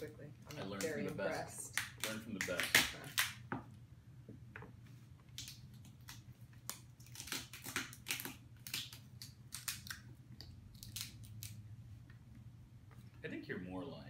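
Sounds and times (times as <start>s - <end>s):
crab shells cracking: 5.3s - 11.6s.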